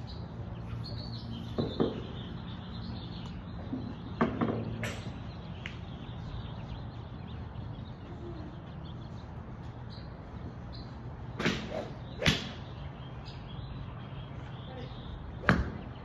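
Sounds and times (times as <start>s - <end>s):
steady low background hum: 0.0s - 16.0s
whooshing club swing: 11.4s - 12.6s.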